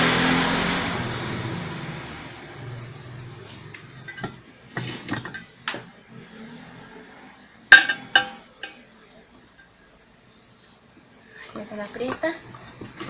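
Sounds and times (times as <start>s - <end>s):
metal parts and tools clinking: 4.0s - 5.5s.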